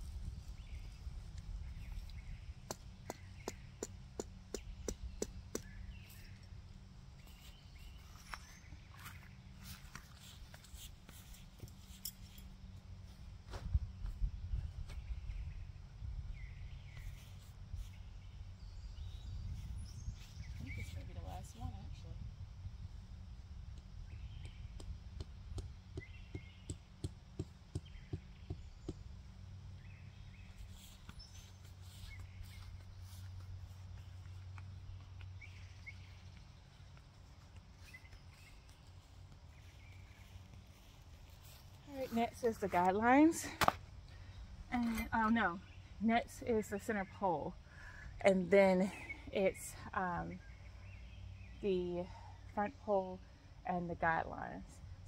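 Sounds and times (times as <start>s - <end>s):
faint birds chirping: 0.0s - 55.0s
tent stake being hammered: 2.6s - 6.1s, 24.4s - 29.0s.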